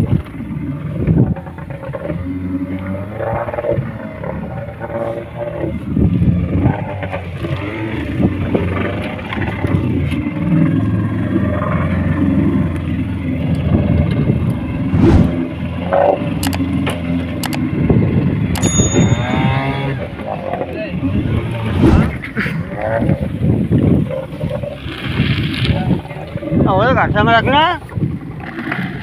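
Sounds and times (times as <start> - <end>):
boat engine running: 0.0 - 29.0
sharp clicks: 16.4 - 16.7, 17.4 - 17.6.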